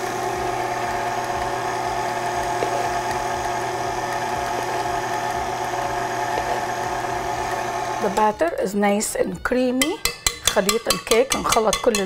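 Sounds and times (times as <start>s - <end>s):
electric mixer motor running: 0.0s - 8.3s.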